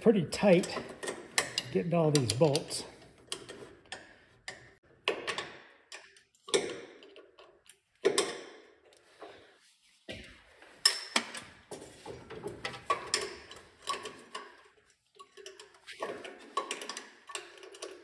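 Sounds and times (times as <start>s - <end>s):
wrench clinking on metal bracket: 0.4s - 7.2s.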